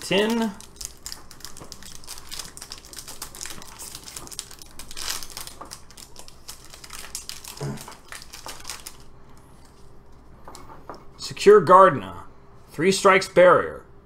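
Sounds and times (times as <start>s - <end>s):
foil wrapper crinkling: 0.0s - 9.9s.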